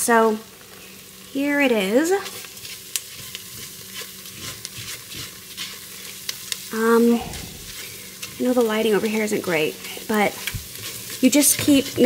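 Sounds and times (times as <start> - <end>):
roux sizzling in a saucepan: 0.0 - 12.0
spatula stirring: 2.2 - 12.0
person humming: 6.8 - 7.8.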